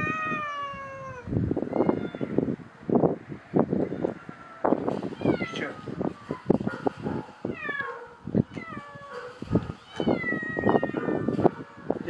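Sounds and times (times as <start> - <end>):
cat meowing: 0.0 - 2.5, 4.9 - 6.4, 7.5 - 11.4.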